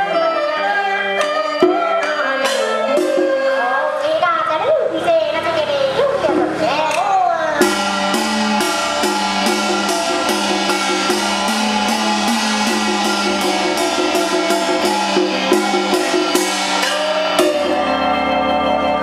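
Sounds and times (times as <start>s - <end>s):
sharp percussion strikes: 1.1s - 3.6s, 7.6s - 19.0s
melody instrument playing: 7.6s - 19.0s.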